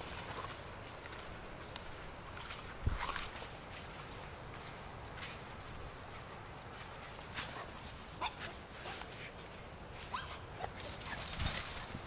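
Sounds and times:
rustle with a thump: 10.6s - 12.0s.

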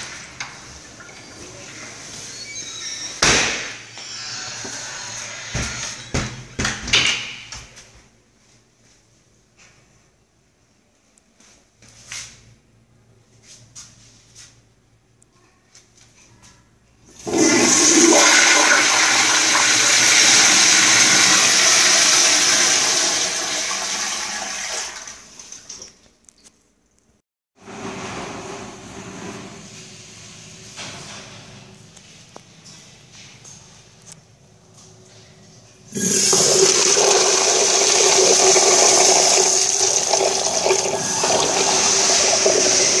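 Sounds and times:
toilet flushing: 0.0s - 6.2s, 17.1s - 25.8s, 35.9s - 43.0s.

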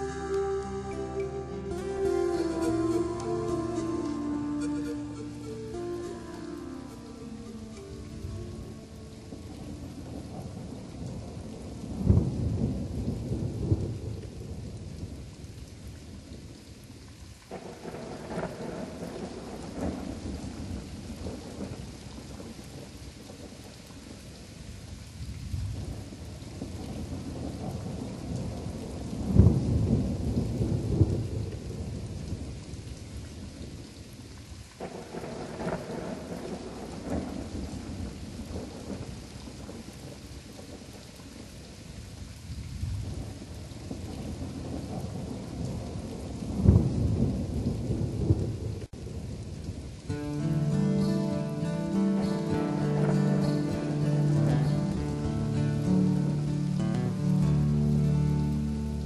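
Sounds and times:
steady rain: 0.0s - 59.0s
rolling thunder: 8.1s - 15.5s, 17.5s - 23.4s, 25.4s - 32.6s, 34.8s - 41.0s, 42.5s - 50.4s, 51.6s - 55.1s.

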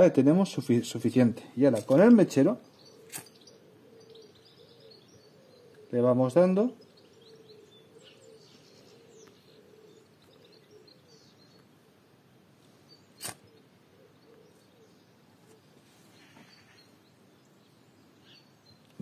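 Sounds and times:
faint birds chirping: 0.0s - 19.0s
sharp click: 13.2s - 13.4s.

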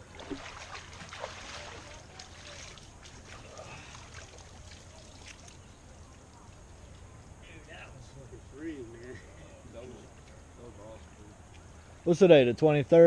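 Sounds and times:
small water splashes: 0.0s - 7.1s
river water lapping and trickling: 0.0s - 7.4s.

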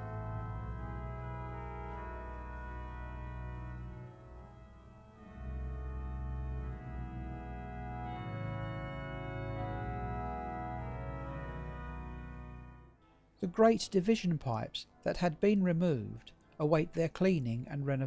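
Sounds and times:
organ playing sustained chords: 0.0s - 13.0s.

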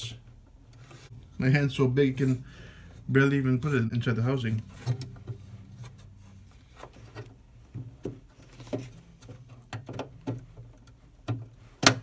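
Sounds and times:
plastic clicks and rubbing: 6.7s - 12.0s.

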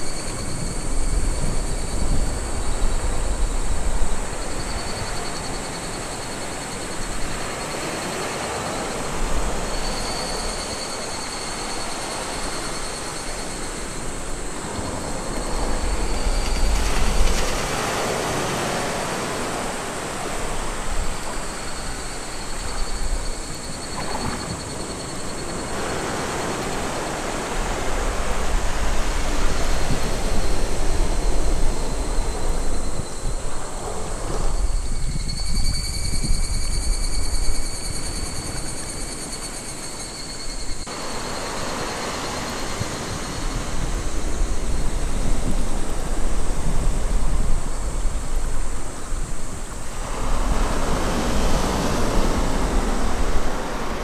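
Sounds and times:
waves washing up a beach: 0.0s - 34.8s, 40.8s - 54.0s.

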